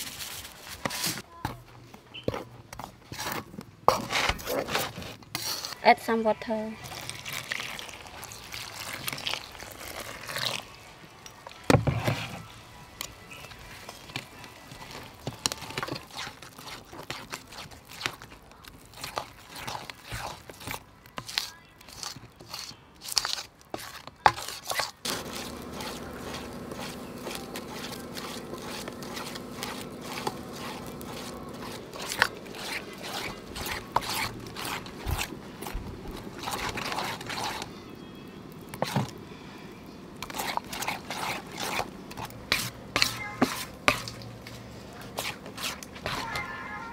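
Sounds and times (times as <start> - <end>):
metal spoon scraping bowl: 3.1 - 6.1, 14.8 - 37.8, 40.2 - 44.2, 45.0 - 46.7.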